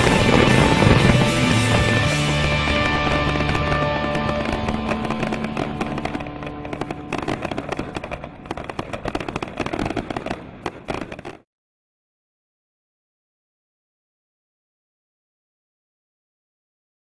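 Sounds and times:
fireworks crackling: 0:00.0 - 0:11.4.

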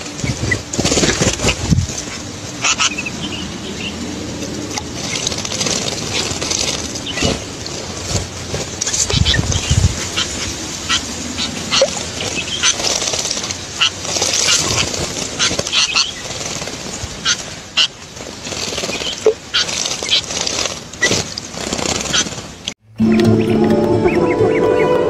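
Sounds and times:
water splashing: 0:00.0 - 0:22.7
songbirds chirping: 0:01.9 - 0:16.4.

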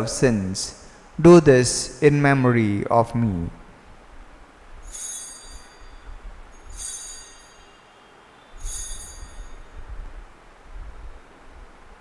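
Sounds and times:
altar bells jingling: 0:04.9 - 0:08.0, 0:08.6 - 0:09.8.

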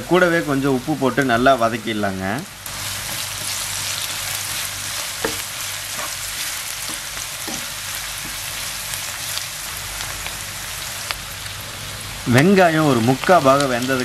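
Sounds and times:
vegetables sizzling in oil: 0:00.0 - 0:14.0
wooden spatula scraping pan: 0:02.9 - 0:08.6.

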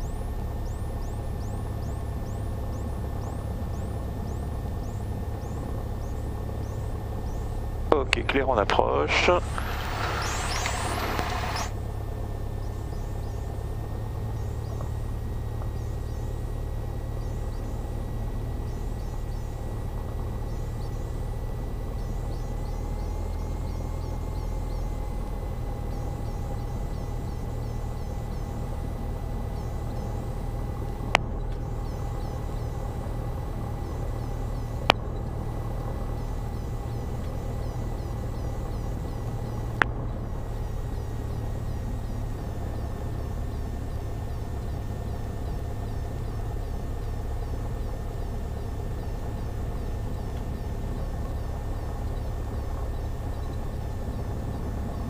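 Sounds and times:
airplane engine idling: 0:00.0 - 0:55.0
sharp clicks: 0:09.3 - 0:11.8.

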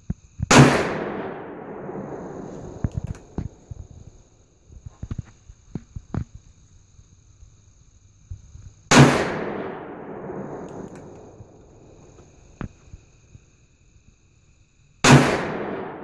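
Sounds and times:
revolver gunshot echoing: 0:00.5 - 0:02.4, 0:08.9 - 0:10.9, 0:15.0 - 0:16.0
sharp click: 0:02.8 - 0:03.5, 0:10.6 - 0:11.5.

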